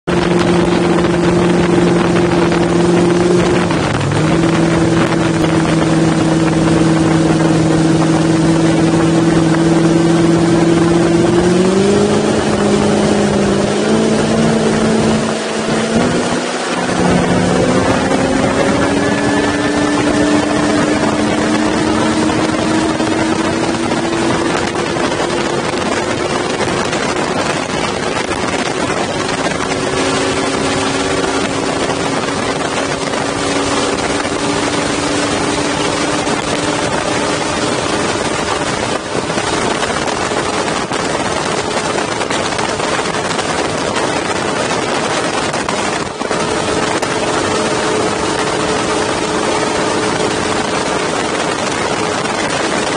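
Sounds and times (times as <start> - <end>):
outboard motor at full throttle: 0.0 - 52.9
rush of wind and spray: 0.0 - 52.9.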